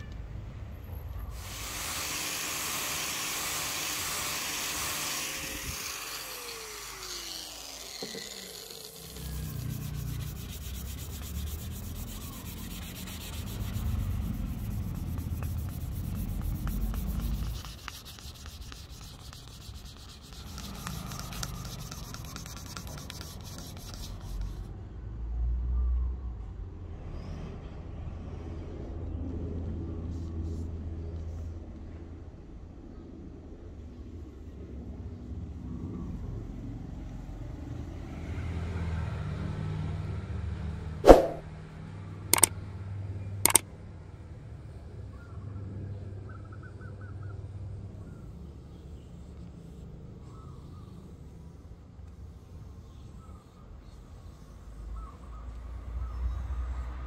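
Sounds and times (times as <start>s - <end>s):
sandpaper rubbing on wood: 1.4s - 24.7s.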